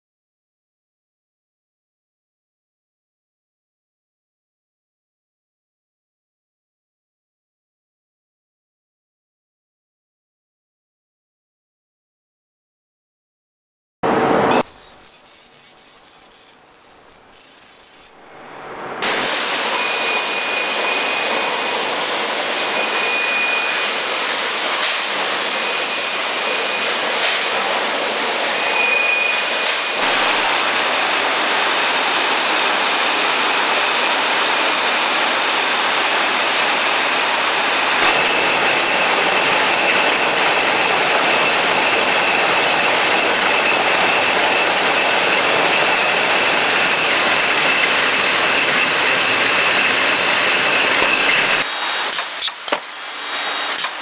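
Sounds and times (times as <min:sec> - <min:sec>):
short high whine: 0:14.0 - 0:54.0
packaging production line running: 0:19.0 - 0:54.0.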